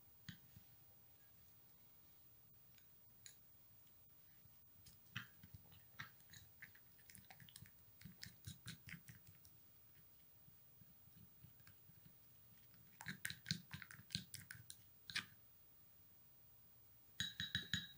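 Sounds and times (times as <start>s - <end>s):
plastic spoon stirring paste: 2.7s - 15.4s.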